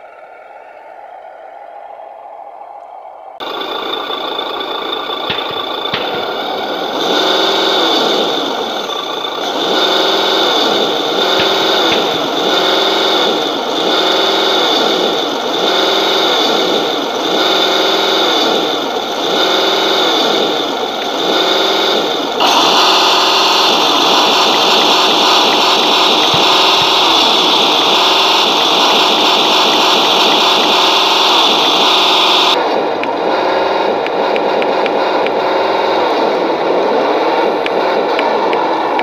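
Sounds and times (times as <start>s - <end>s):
electric motor and gears whining: 3.4s - 39.0s.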